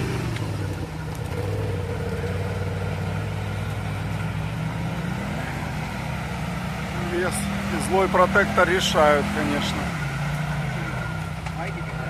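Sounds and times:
vehicle engine running at low revs: 0.0s - 12.0s.

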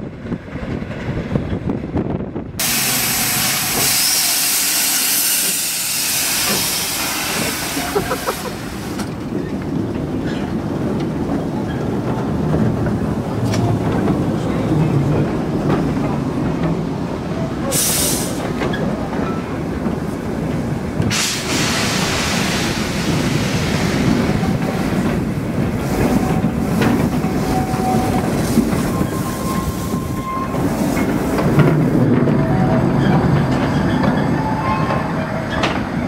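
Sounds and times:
steam hiss: 2.6s - 9.0s, 17.7s - 18.6s, 21.1s - 24.4s
steam locomotive pulling away: 2.6s - 9.2s, 17.6s - 19.6s, 21.0s - 36.0s
wagons rumbling on track: 5.3s - 36.0s.

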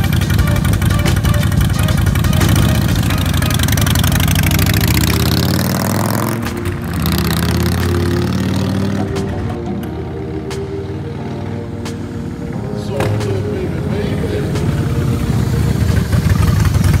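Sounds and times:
motorcycle engines revving: 0.0s - 17.0s
music: 0.0s - 17.0s.

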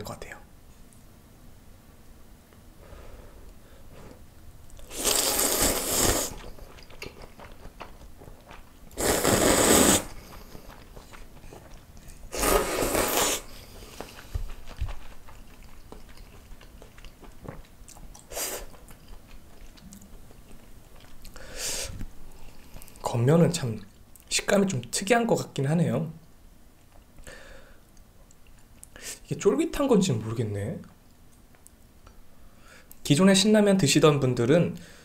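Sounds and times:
loud noodle slurping: 4.8s - 6.9s, 8.9s - 11.0s, 12.1s - 14.3s
quiet chewing clicks: 6.4s - 9.0s, 10.2s - 12.3s, 13.5s - 21.4s, 22.0s - 23.1s, 26.2s - 27.3s, 27.9s - 29.0s, 30.8s - 32.2s.

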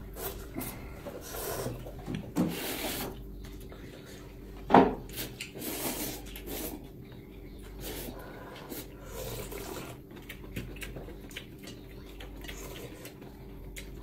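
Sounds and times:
people slurping noodles: 7.8s - 10.0s.

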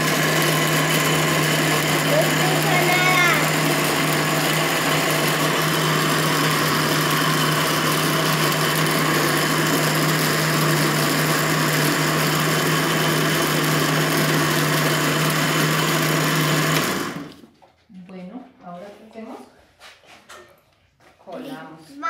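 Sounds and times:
blender motor hum: 0.0s - 17.5s.

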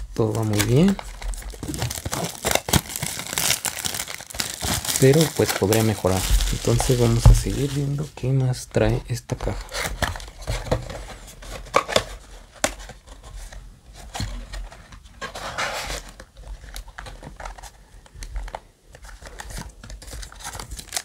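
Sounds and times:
foil packs crinkling: 0.0s - 8.2s, 16.0s - 21.0s.

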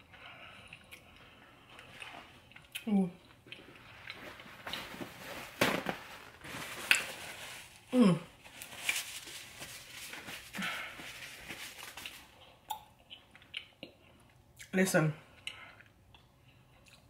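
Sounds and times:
person humming mm: 7.9s - 8.3s
mouth clicks and lip smacks: 12.6s - 14.0s.

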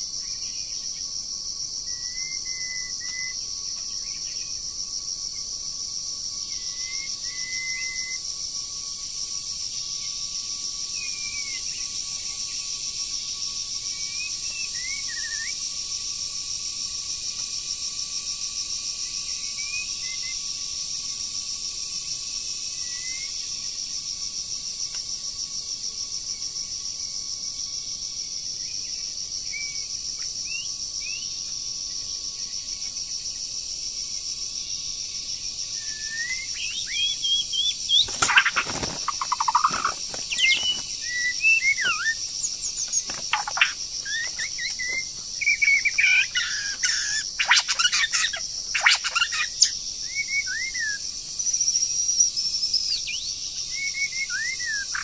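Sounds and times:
pulsing insect chorus: 0.0s - 55.0s
bird chirps: 35.8s - 51.0s.

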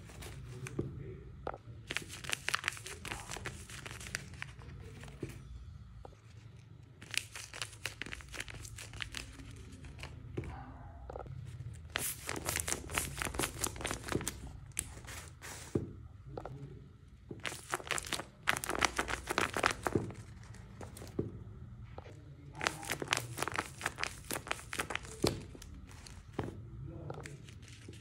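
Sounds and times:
taped paper crinkling when squeezed: 1.9s - 4.5s, 7.0s - 9.6s, 17.4s - 20.5s, 22.6s - 26.2s.

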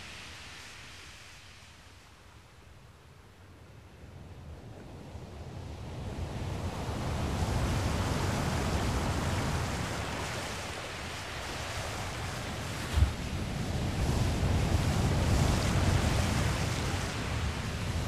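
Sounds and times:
wind rumbling on microphone: 3.3s - 18.0s
surf rushing: 6.6s - 18.0s.

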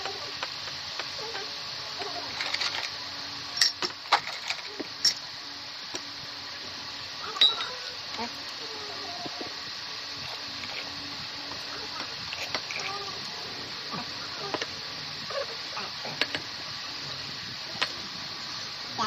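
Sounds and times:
glass clinking on glass: 7.4s - 7.7s.

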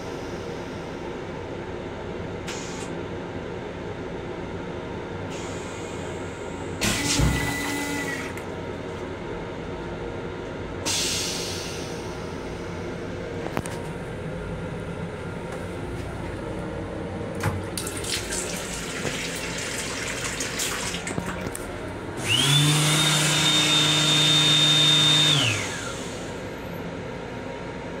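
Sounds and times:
faucet water splashing into sink: 17.7s - 21.5s
small electric motor whining: 22.2s - 26.3s.

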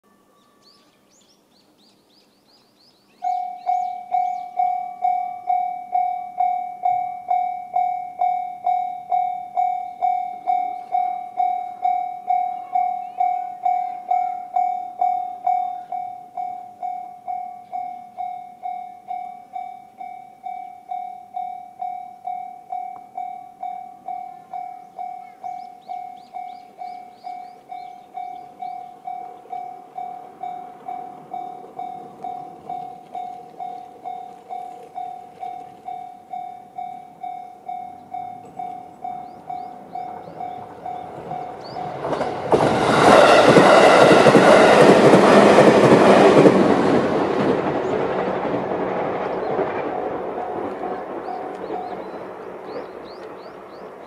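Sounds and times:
birds chirping faintly: 0.1s - 5.7s, 9.6s - 16.6s, 23.8s - 42.3s
level crossing warning bell: 3.2s - 46.7s, 50.5s - 54.0s.

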